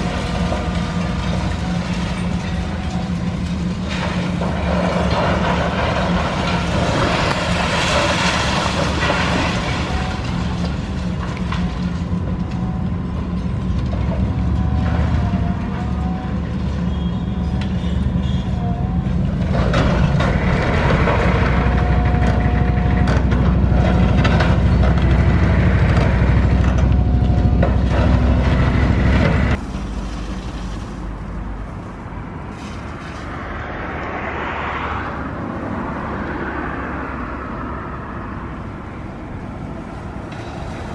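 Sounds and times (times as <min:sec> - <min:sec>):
debris cracking and falling: 0:00.0 - 0:15.0, 0:19.4 - 0:30.9
diesel engine under load: 0:00.0 - 0:40.9.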